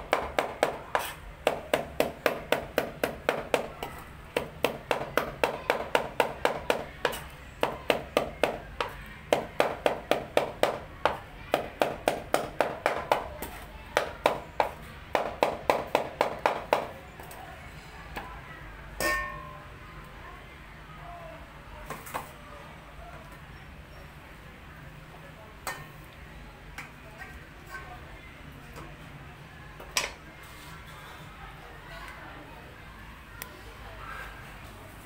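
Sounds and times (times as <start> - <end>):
knife chopping on cutting board: 0.1 - 16.9.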